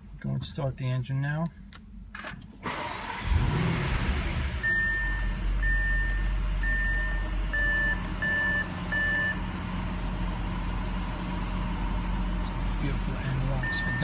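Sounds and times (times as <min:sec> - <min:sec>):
car engine idling: 0:02.8 - 0:14.0
in-car warning chimes: 0:04.6 - 0:09.5, 0:13.5 - 0:14.0.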